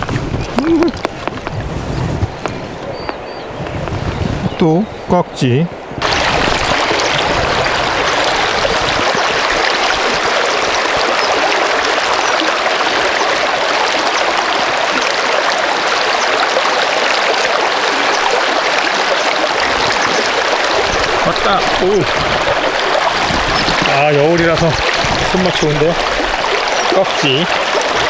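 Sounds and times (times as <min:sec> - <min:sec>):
river rushing over rocks: 0:06.0 - 0:28.0.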